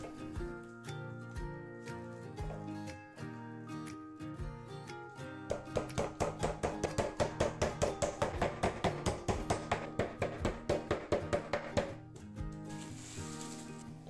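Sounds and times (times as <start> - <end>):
meat mallet pounding on wood: 5.5 - 12.0.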